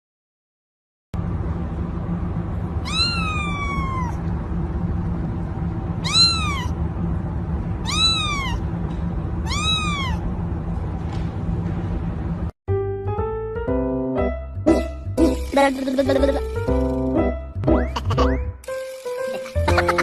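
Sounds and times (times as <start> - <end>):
steady low hum: 1.2 - 12.5
kitten meowing: 2.8 - 4.2, 6.0 - 6.8, 7.8 - 8.6, 9.4 - 10.2.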